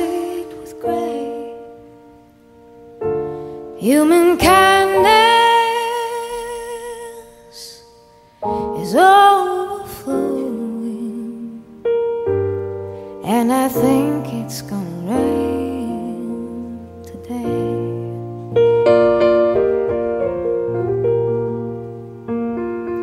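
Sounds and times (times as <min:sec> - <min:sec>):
woman singing: 0:00.0 - 0:01.9, 0:03.8 - 0:11.8, 0:13.2 - 0:18.4
piano chords: 0:00.0 - 0:23.0.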